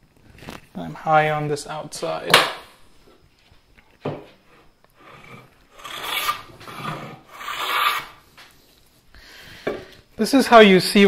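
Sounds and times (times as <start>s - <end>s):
hand plane rasping strokes: 5.0s - 8.2s.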